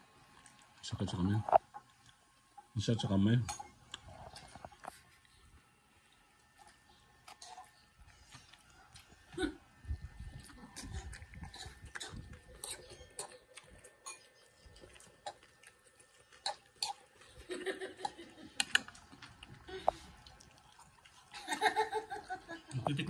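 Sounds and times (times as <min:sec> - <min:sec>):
fork clinking against a bowl: 0:03.4 - 0:03.7, 0:11.4 - 0:13.4, 0:14.0 - 0:14.5.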